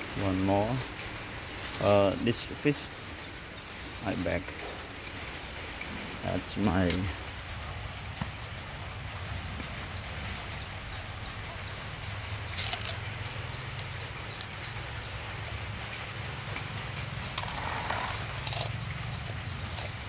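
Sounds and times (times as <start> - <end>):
rain pattering: 0.0 - 20.0
dog chewing fish: 12.3 - 20.0.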